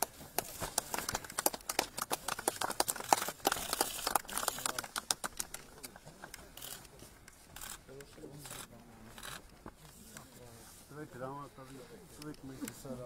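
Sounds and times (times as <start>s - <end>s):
people clapping: 0.0s - 6.1s.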